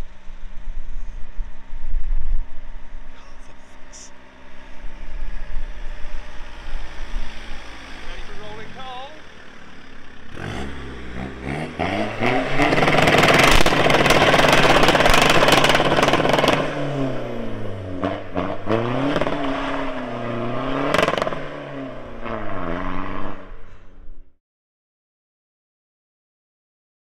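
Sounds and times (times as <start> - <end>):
car engine revving with crackles: 0.2 - 24.0.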